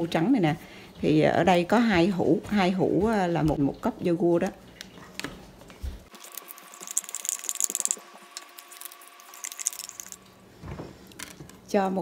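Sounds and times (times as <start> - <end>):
spoon scraping plastic cup: 6.2 - 10.2.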